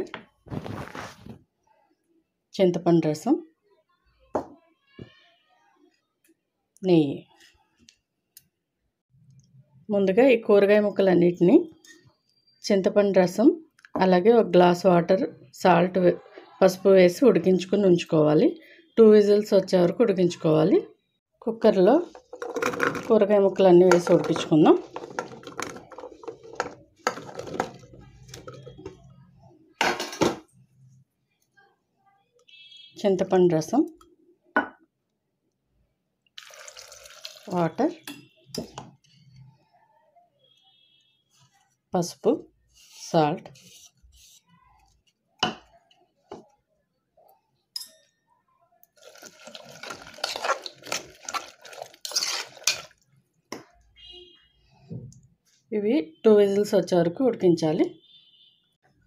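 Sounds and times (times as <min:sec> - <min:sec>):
vegetables dropping into metal pot: 0:22.1 - 0:28.8
hand sloshing vegetables in water: 0:49.0 - 0:53.0.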